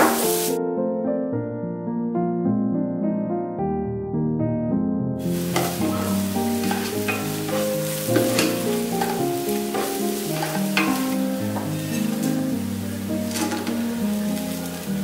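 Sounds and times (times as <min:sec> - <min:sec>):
vegetables sizzling in hot oil: 0:00.0 - 0:00.6, 0:05.2 - 0:15.0
soft piano music: 0:00.0 - 0:15.0
spatula scraping a pan: 0:05.3 - 0:15.0.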